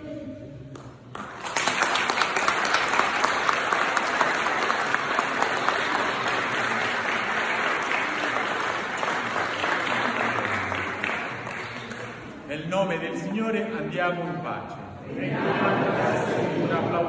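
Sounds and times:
crowd applauding: 0:00.8 - 0:12.4.

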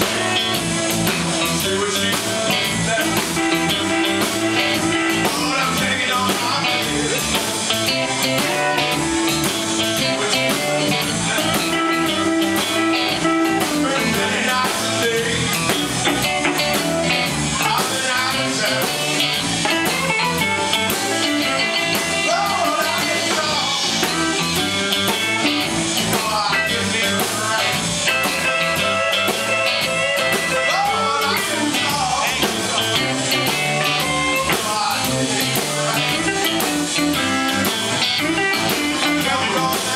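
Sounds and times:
bass and drum kit: 0:00.0 - 0:39.9
electric guitars: 0:00.0 - 0:39.9
man singing into a microphone: 0:01.1 - 0:08.6, 0:09.8 - 0:39.9.

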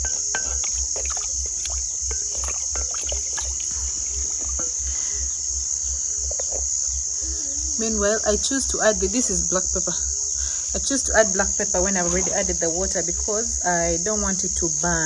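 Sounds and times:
wooden spoon stirring in a pot: 0:00.0 - 0:05.2
liquid simmering: 0:00.0 - 0:05.4
crickets trilling: 0:00.0 - 0:15.0.

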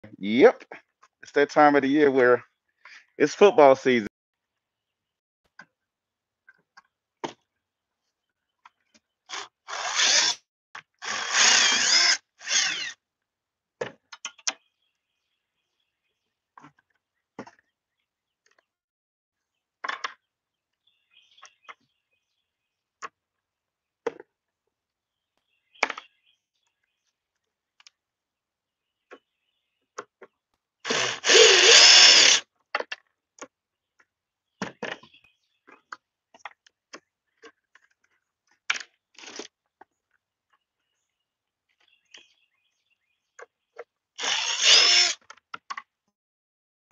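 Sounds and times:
cordless drill running: 0:09.3 - 0:10.4, 0:11.0 - 0:13.0, 0:30.9 - 0:32.4, 0:44.2 - 0:45.2.

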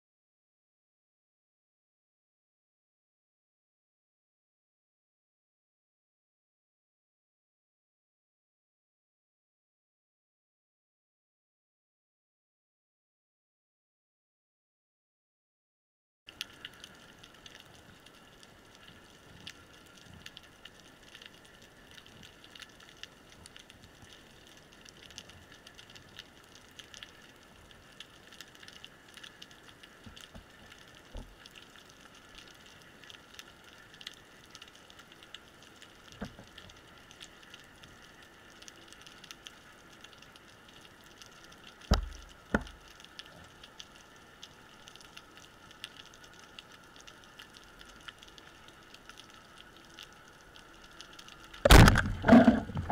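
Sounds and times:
dull underwater knocks: 0:41.9 - 0:42.8, 0:51.6 - 0:52.9.

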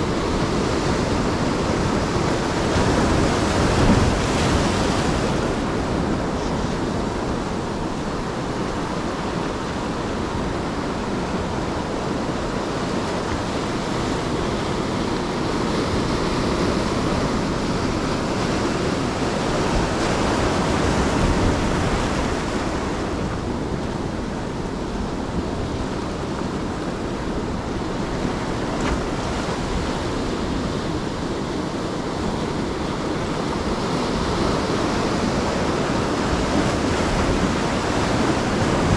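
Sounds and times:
ocean surf washing ashore: 0:00.0 - 0:38.9
wind rumbling on microphone: 0:00.0 - 0:38.9.

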